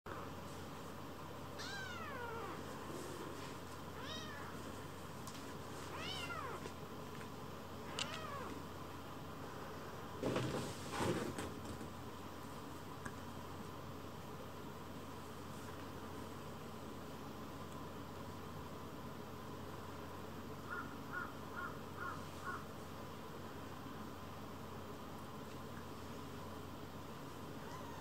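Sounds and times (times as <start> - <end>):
kittens scuffling on a blanket: 2.4 - 7.4
kitten mewing: 7.9 - 8.6, 27.6 - 28.0.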